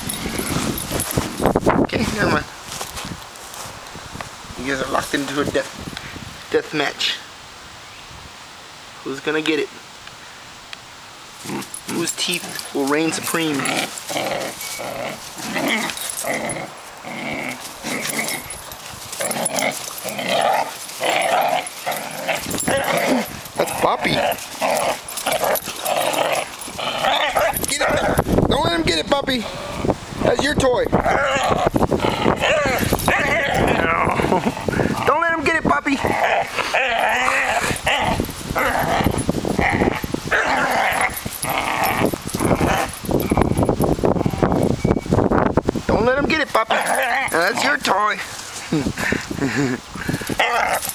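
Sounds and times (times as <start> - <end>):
dogs growling in play: 0.1 - 1.4, 11.4 - 28.4, 29.4 - 30.0, 31.0 - 35.1, 36.0 - 44.6, 46.6 - 47.8, 49.0 - 50.9.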